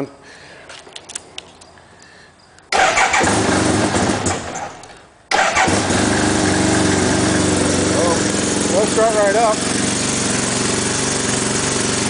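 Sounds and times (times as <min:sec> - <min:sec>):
motorcycle engine starting and idling: 0:02.7 - 0:12.0.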